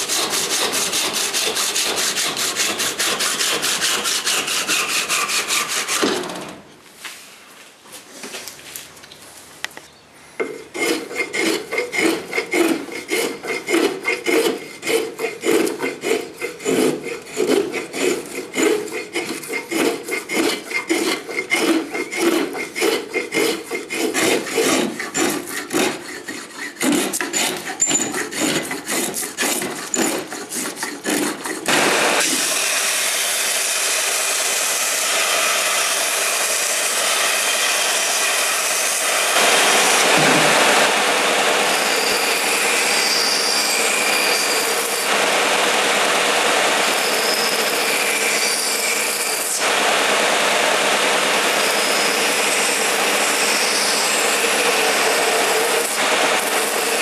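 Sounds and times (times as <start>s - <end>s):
belt sander sanding wood: 0.0s - 6.0s, 10.5s - 57.0s
spokeshave scraping wood: 10.4s - 32.4s.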